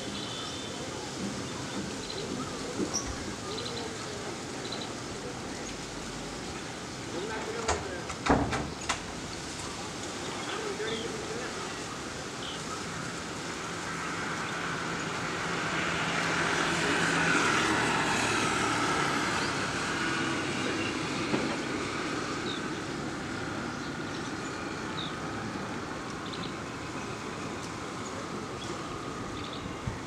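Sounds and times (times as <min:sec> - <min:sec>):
distant passing engine: 0:14.1 - 0:30.0.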